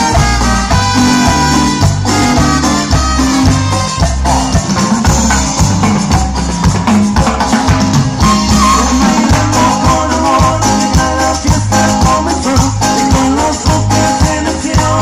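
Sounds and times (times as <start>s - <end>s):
live latin dance band: 0.0s - 15.0s.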